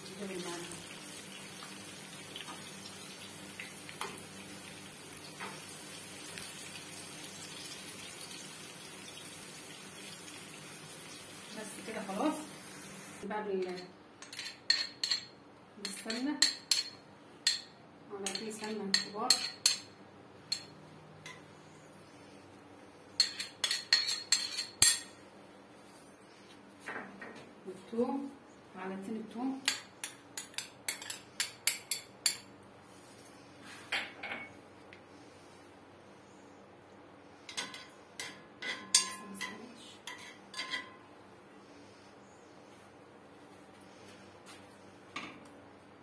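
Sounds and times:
vegetables sizzling in oil: 0:00.0 - 0:13.2.

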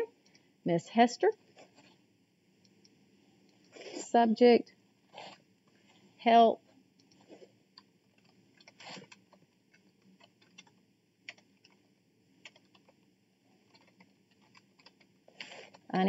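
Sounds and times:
faint keyboard typing: 0:07.0 - 0:16.0.

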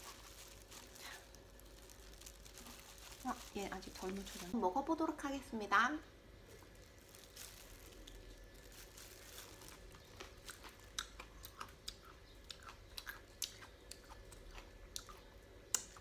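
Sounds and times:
soft crunches and mouth clicks: 0:00.0 - 0:04.6, 0:06.5 - 0:16.0
person chewing: 0:06.5 - 0:16.0.

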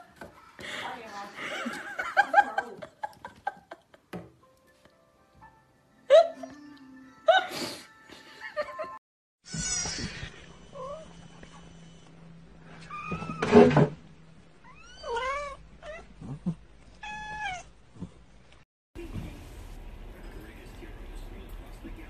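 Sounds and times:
cats meowing: 0:14.6 - 0:17.7.

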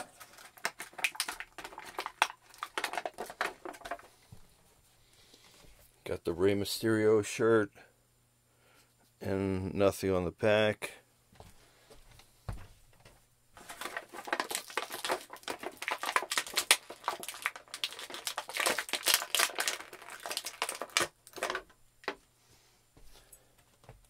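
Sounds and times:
plastic packaging crinkling: 0:00.0 - 0:04.1, 0:13.6 - 0:22.2.

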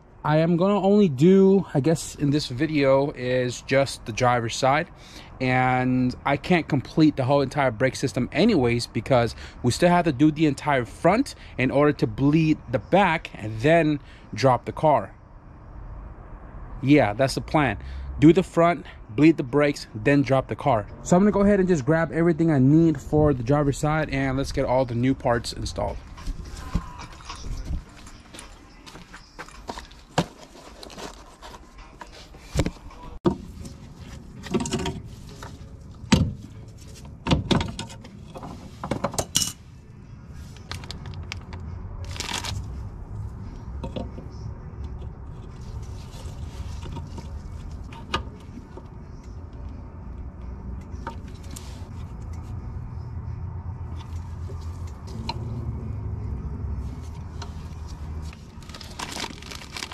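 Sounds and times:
metal tools clinking: 0:39.1 - 0:39.6.

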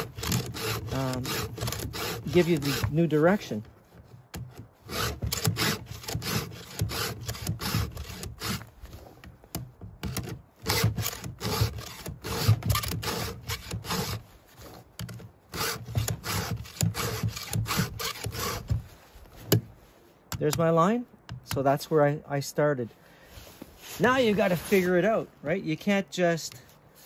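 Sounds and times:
file rasping on saw chain: 0:00.0 - 0:08.7, 0:10.0 - 0:14.8, 0:15.5 - 0:18.8.

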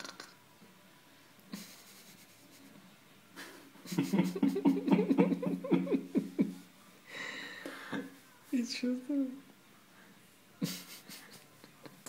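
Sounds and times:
person laughing: 0:01.5 - 0:02.7, 0:03.4 - 0:06.6, 0:10.6 - 0:11.9
breathy sound: 0:07.1 - 0:08.1.

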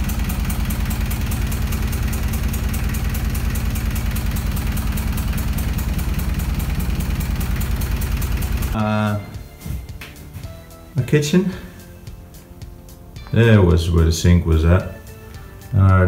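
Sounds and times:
diesel engine idling: 0:00.0 - 0:09.5.

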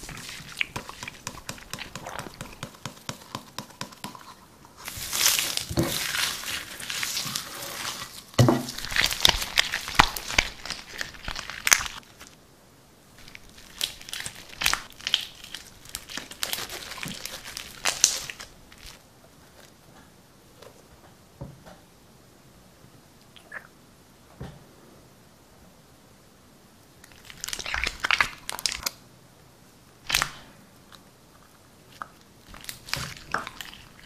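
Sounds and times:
slime crackling and crinkling: 0:00.0 - 0:12.4, 0:13.2 - 0:19.8, 0:27.0 - 0:29.0, 0:30.0 - 0:34.0.

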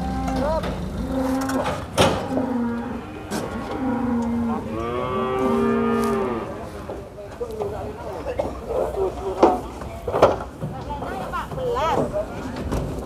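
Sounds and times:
cattle mooing: 0:00.0 - 0:06.9.

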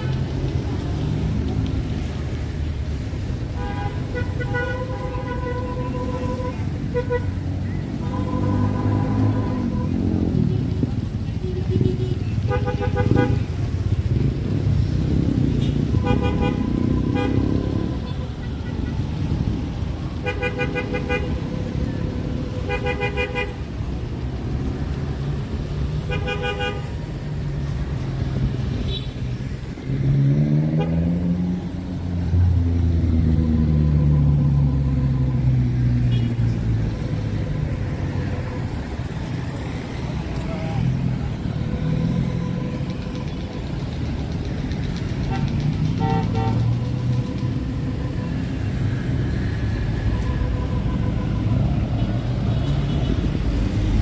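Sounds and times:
traffic rumble: 0:00.0 - 0:54.0
vehicle horns tooting: 0:08.0 - 0:10.5, 0:11.4 - 0:13.7, 0:15.6 - 0:19.1, 0:20.2 - 0:21.4, 0:22.6 - 0:23.6, 0:26.0 - 0:27.1, 0:45.3 - 0:47.4
vehicle engine revving: 0:29.6 - 0:35.8.

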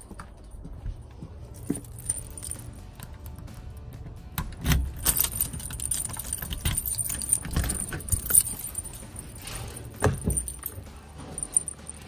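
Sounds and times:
keys jangling: 0:01.5 - 0:03.8, 0:04.5 - 0:12.0
door lock clicking: 0:04.3 - 0:08.6
doorknob turning: 0:04.4 - 0:08.7.

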